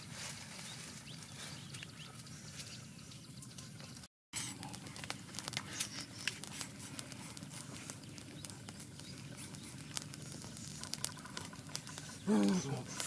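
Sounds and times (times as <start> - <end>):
campfire crackling: 0.0 - 13.0
sharp pops: 4.4 - 13.0.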